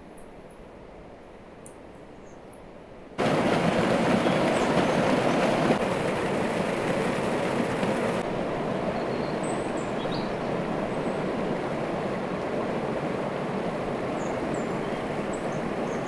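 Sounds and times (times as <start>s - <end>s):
stream tumbling over rocks: 3.2s - 8.2s.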